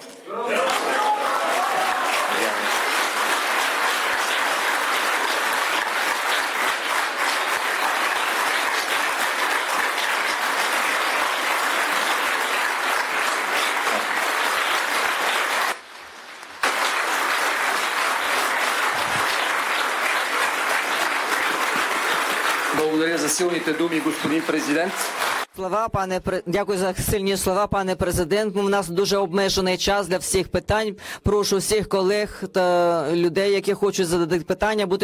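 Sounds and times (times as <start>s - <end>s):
audience applauding: 0.3s - 25.5s.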